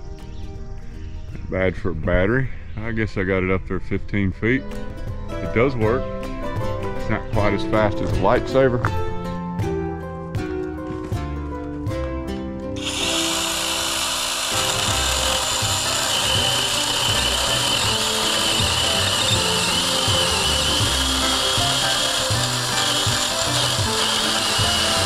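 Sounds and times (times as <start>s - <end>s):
background music: 0.0s - 25.0s
battery chainsaw cutting log: 12.8s - 25.0s.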